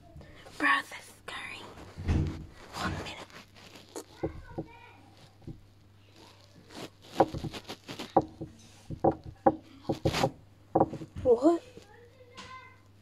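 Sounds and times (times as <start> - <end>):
irregular knocks and thumps: 1.9 - 3.2, 4.1 - 4.8, 5.4 - 5.6, 7.0 - 11.6.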